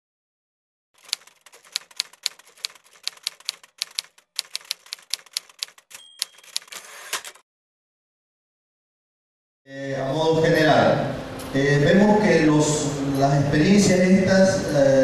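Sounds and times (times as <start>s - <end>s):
typewriter bell ring: 1.0s - 7.4s
typewriter keys clacking: 1.0s - 7.4s.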